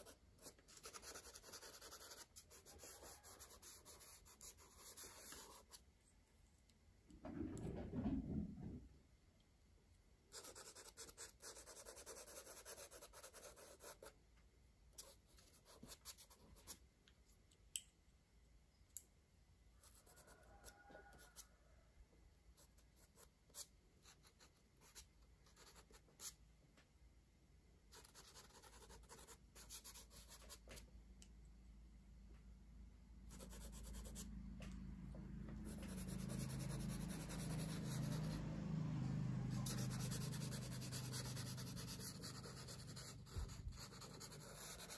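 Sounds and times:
crayon scratching on paper: 0.0 - 5.8, 39.6 - 44.9.

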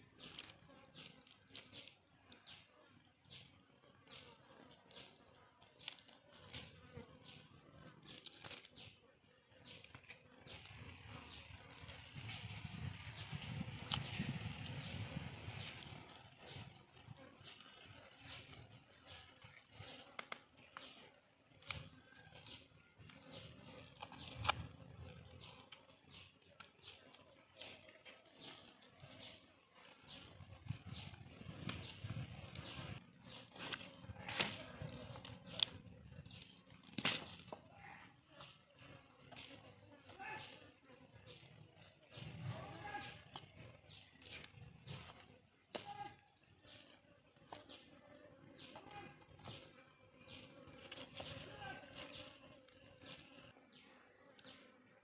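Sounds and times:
bird chirping: 20.7 - 54.7.

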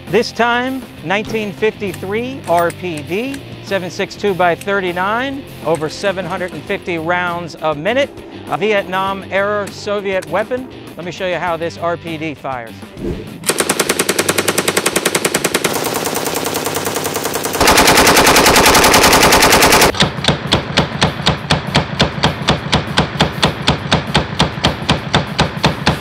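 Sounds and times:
machine gun automatic fire: 13.4 - 20.0.

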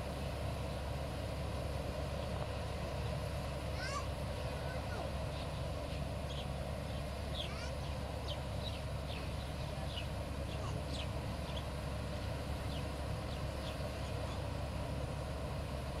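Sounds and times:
combine harvester running: 0.0 - 16.0
birds chirping: 4.4 - 14.6.

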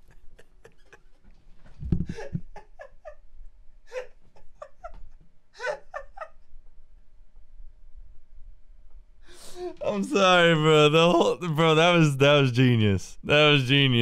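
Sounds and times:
man laughing hysterically: 0.0 - 3.3, 3.9 - 6.5.

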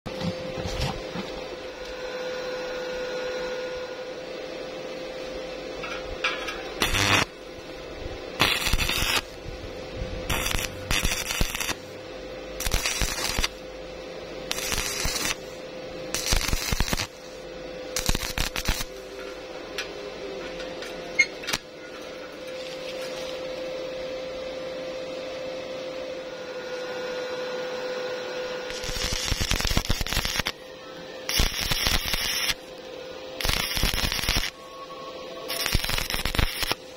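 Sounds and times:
steady hum: 0.1 - 36.9
welding arc crackling: 6.7 - 7.5, 8.4 - 13.7, 14.5 - 17.4, 18.0 - 19.2, 28.7 - 30.6, 31.2 - 32.8, 33.4 - 34.6, 35.5 - 36.9.

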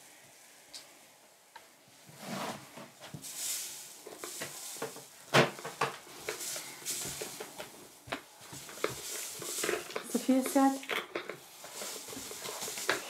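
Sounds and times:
sand pouring hiss: 2.2 - 10.8, 11.4 - 13.0.

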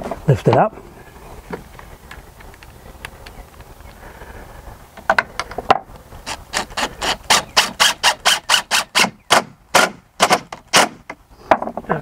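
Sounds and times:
cordless driver driving screw: 6.2 - 11.0.

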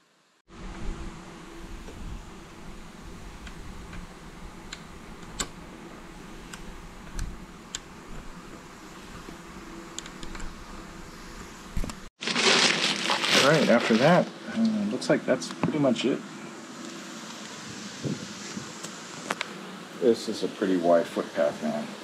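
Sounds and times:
packing material crinkling: 12.2 - 14.3.

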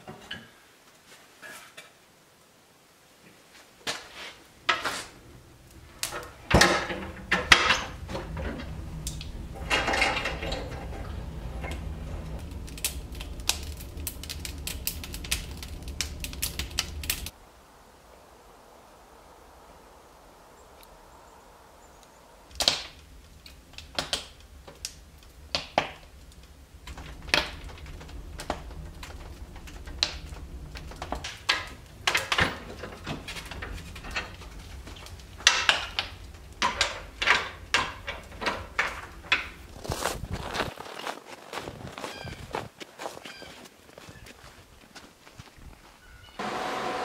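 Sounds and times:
wood fire popping and knocking: 4.6 - 17.4, 22.5 - 45.9.

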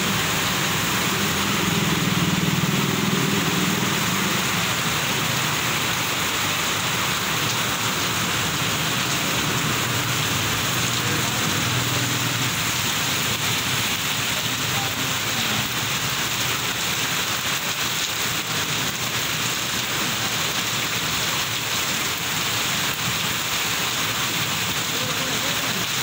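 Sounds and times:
torrential rain on street: 0.0 - 26.0.

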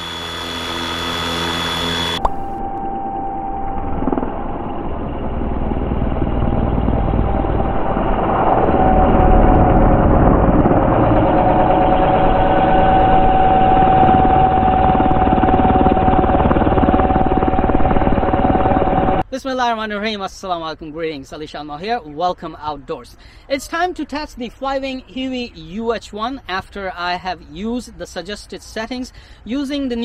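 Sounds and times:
helicopter rotor rush: 0.0 - 19.2
motor and gear whine: 0.0 - 19.2.

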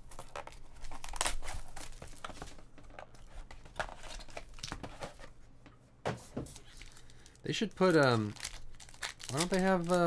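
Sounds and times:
plastic wrap tearing and crinkling: 0.0 - 2.5, 6.7 - 10.0
foil pack rustling: 6.7 - 10.0.

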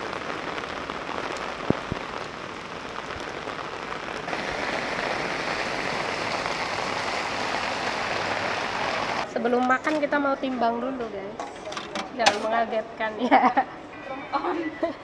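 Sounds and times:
heavy rain hissing: 0.0 - 9.3.

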